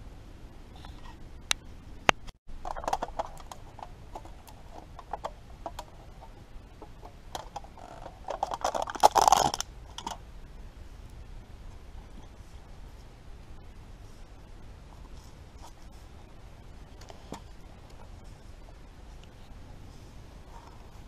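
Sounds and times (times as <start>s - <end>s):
food packaging crinkling: 8.2s - 10.1s.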